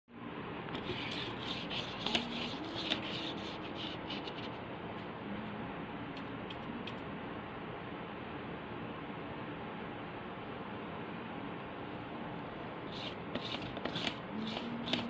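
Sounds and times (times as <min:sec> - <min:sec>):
paintbrush scrubbing cardboard: 0:00.8 - 0:04.5, 0:12.9 - 0:15.0.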